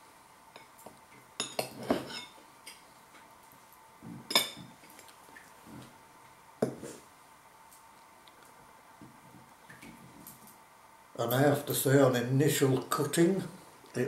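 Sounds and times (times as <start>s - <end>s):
cutlery clinking on ceramic bowl: 1.4s - 2.4s, 4.3s - 4.7s.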